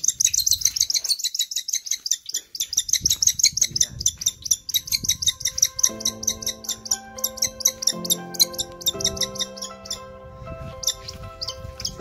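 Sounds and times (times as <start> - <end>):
young hawk chirping: 0.0 - 10.1, 10.8 - 12.0
background music: 4.6 - 12.0.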